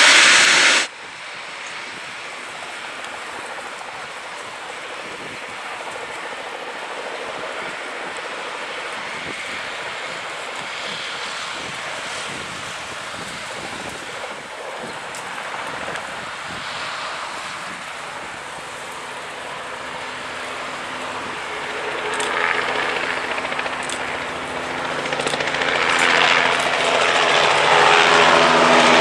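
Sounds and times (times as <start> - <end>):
steady hum: 0.0 - 0.9
helicopter engine and rotor: 0.0 - 29.0.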